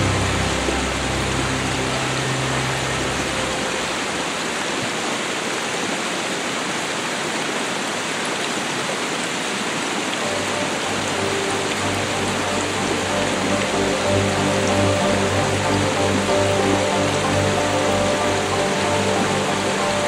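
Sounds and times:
background music low notes: 0.0 - 4.5, 10.2 - 20.0
rushing water: 0.0 - 20.0.

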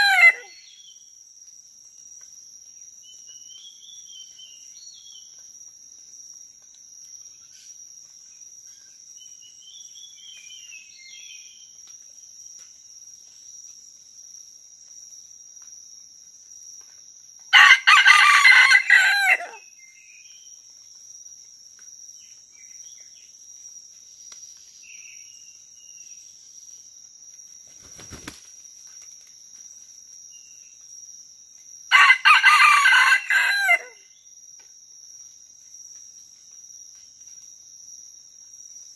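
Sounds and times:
rooster crowing: 0.0 - 0.6, 17.5 - 19.6, 31.9 - 34.0
high-pitched insect drone: 0.0 - 38.9.

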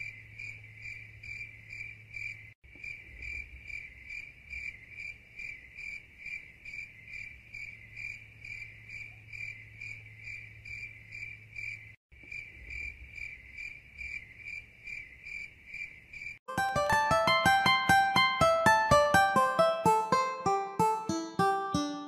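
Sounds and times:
insect chirping: 0.0 - 16.4.

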